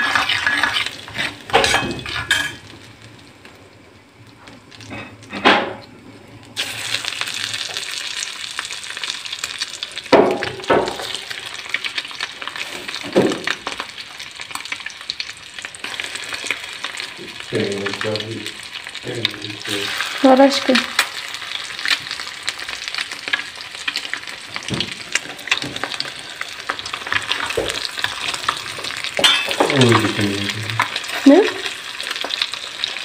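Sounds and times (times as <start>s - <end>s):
eggs sizzling in a pan: 0.0s - 33.0s
metal spoon clinking on pan: 29.2s - 29.7s.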